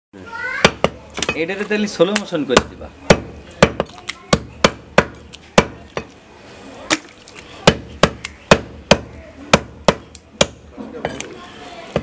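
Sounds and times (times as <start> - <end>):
cleaver chopping meat on wood: 0.6 - 1.4, 2.1 - 6.1, 7.6 - 10.6.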